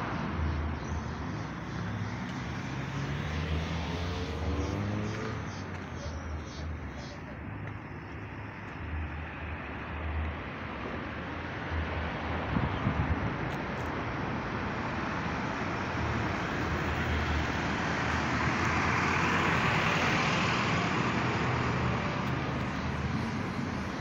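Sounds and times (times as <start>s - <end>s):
steady traffic hum: 0.0s - 24.0s
car passing by: 1.4s - 6.7s, 16.2s - 24.0s.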